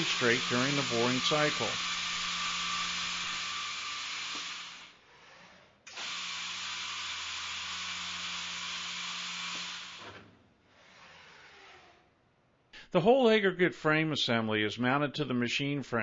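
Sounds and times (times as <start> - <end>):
drilling machine humming: 0.0 - 5.0, 5.9 - 10.2.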